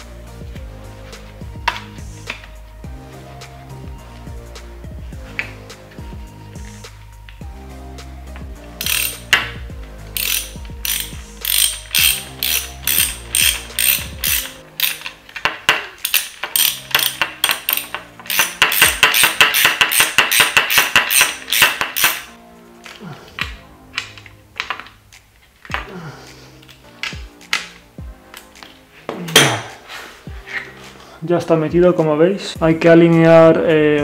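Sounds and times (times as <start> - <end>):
ratchet clicking: 8.8 - 22.4.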